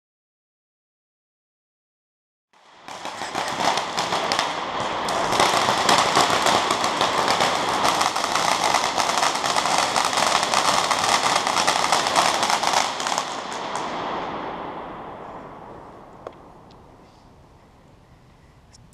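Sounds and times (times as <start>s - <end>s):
firework crackling hiss: 2.6s - 17.5s.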